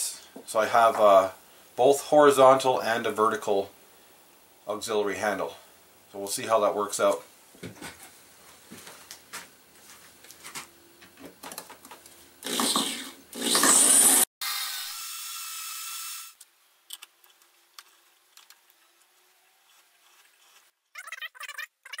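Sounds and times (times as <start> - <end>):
electric drill boring into metal: 12.4 - 16.4.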